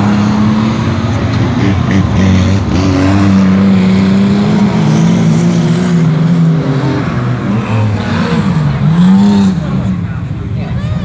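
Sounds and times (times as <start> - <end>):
race car engine passing: 0.0 - 10.6
engines revving: 0.0 - 11.0.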